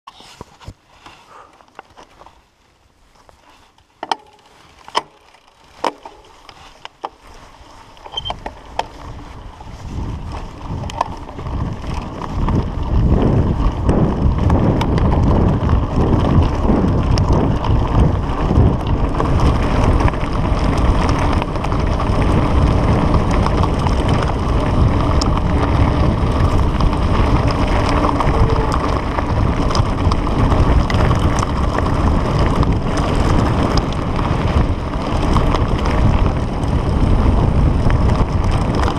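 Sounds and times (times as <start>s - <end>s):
bike tyres rumbling over gravel: 0.1s - 38.9s
wind buffeting microphone: 8.1s - 38.9s.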